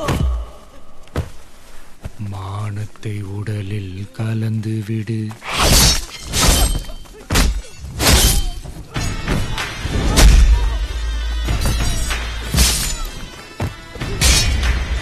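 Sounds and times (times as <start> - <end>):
action film score: 2.6 - 15.0.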